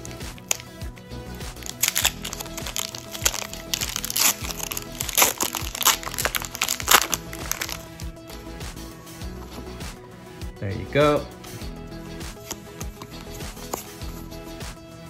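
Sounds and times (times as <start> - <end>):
foil wrapper tearing and crinkling: 0.0 - 0.8, 1.4 - 8.0
background music: 0.0 - 15.0.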